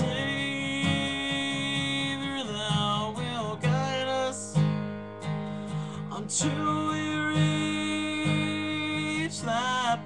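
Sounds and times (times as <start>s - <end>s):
man singing a hymn: 0.0s - 4.8s, 5.8s - 10.0s
acoustic guitar strumming: 0.0s - 10.0s.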